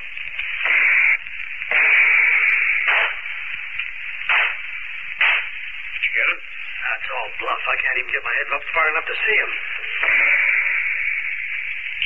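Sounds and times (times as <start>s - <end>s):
rifle shots: 1.7s - 3.3s, 4.3s - 5.5s.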